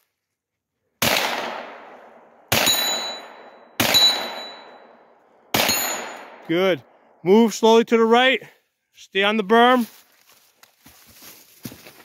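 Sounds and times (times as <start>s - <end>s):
gunshots echoing: 1.0s - 7.1s
steel target ringing: 2.5s - 6.4s.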